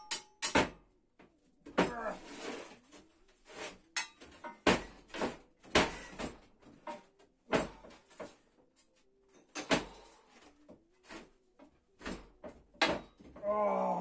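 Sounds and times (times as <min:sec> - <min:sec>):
metallic knocks and clanks: 0:00.0 - 0:00.9, 0:04.0 - 0:08.4.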